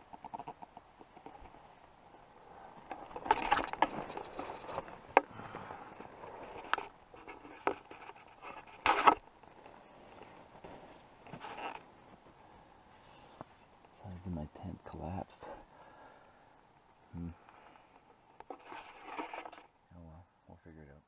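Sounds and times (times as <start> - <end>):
rustling: 0.0 - 14.4, 17.3 - 19.8
camping gear clicks and clinks: 2.7 - 12.3.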